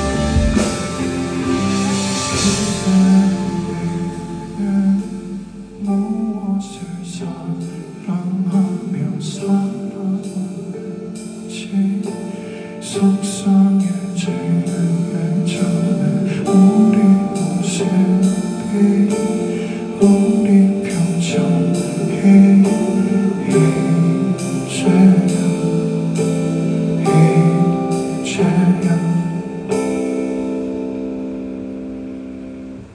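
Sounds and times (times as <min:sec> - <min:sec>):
drums on cymbals: 0:00.0 - 0:06.1
electric guitar: 0:00.0 - 0:06.5
man singing: 0:00.0 - 0:30.7.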